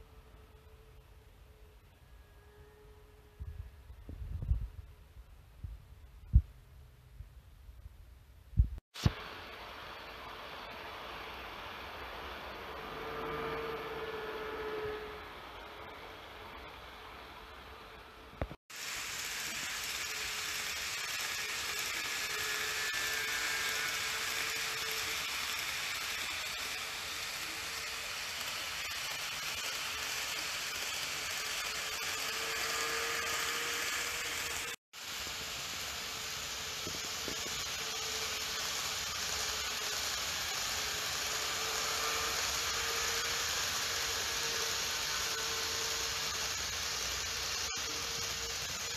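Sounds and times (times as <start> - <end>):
faint motor hum: 8.6 - 29.1
model trains running on track: 9.3 - 48.9.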